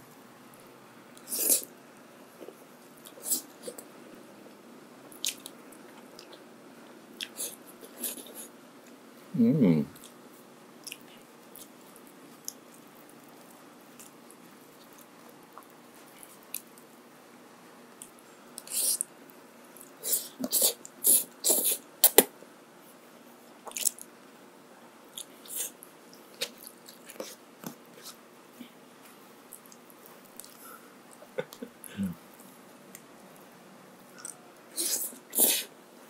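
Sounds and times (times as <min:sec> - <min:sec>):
chewing: 0:05.1 - 0:06.4, 0:10.8 - 0:16.8, 0:23.6 - 0:24.1, 0:25.1 - 0:28.2, 0:29.0 - 0:31.7, 0:32.4 - 0:35.7.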